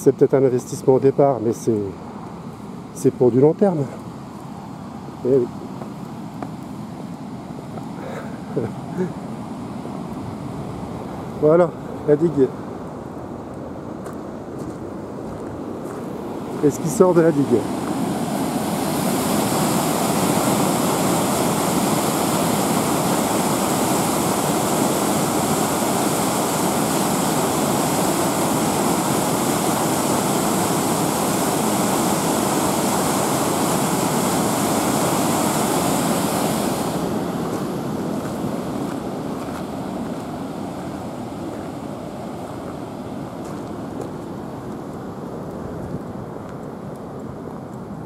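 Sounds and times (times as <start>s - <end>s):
white water rushing: 15.1s - 48.0s.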